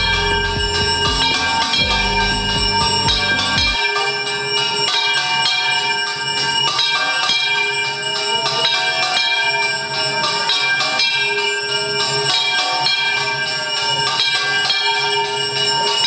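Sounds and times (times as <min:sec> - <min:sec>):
low beat: 0:00.0 - 0:03.8
bells ringing rapidly: 0:00.0 - 0:16.0.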